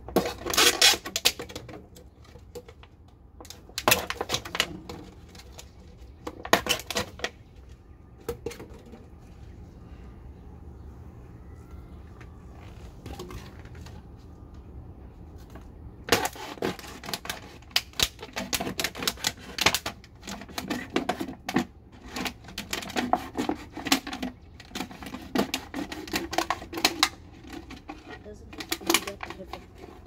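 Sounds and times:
plastic bottle crinkling: 16.1 - 30.0.

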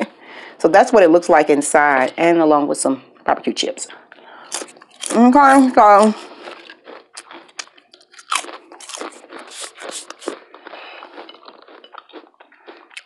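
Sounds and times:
potato chips crunching: 4.5 - 13.0.

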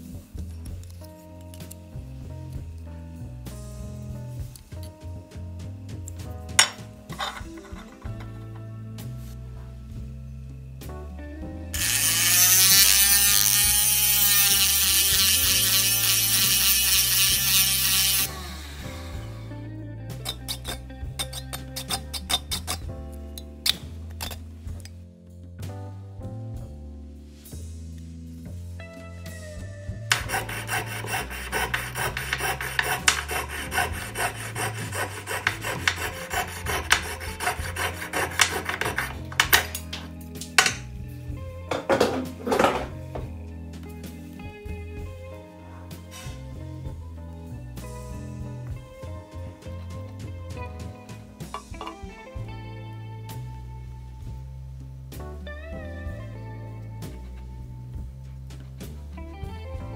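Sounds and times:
background music: 0.0 - 59.9
saw rasping through metal: 6.6 - 8.4, 11.8 - 18.4, 30.1 - 39.8
cut-off disc grinding metal: 6.6 - 8.6, 11.8 - 18.4, 30.1 - 39.9
rotary tool motor whine: 11.8 - 18.9, 30.1 - 38.3.

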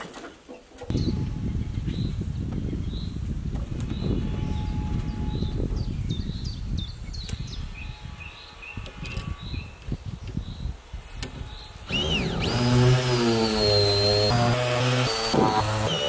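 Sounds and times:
small birds chirping: 0.5 - 12.6.

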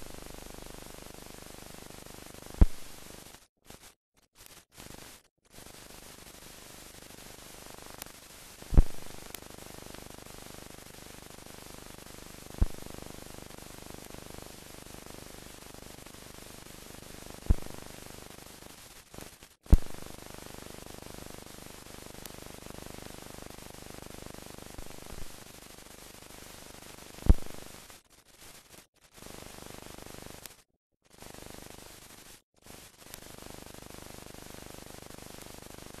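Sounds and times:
film hiss: 0.0 - 22.7, 24.8 - 29.7
sharp clicks and pops: 2.6 - 3.4, 8.7 - 9.4, 12.6 - 12.9, 17.4 - 17.9, 19.7 - 20.1, 24.8 - 25.4, 27.2 - 27.6.

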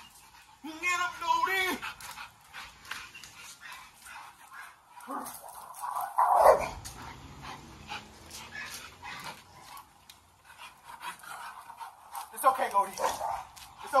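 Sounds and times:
dogs barking: 3.5 - 7.0, 10.7 - 14.0.

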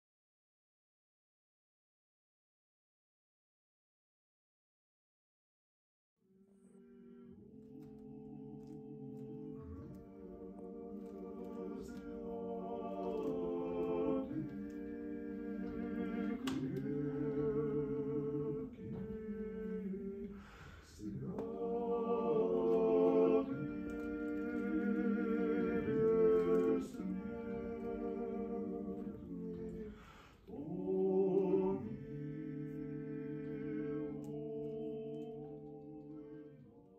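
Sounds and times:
male trio singing a cappella: 7.2 - 36.7.

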